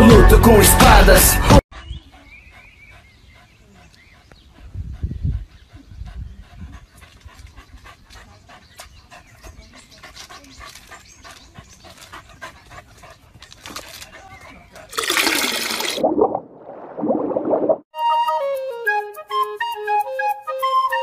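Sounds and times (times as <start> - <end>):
dog panting and snuffling: 1.8 - 14.9.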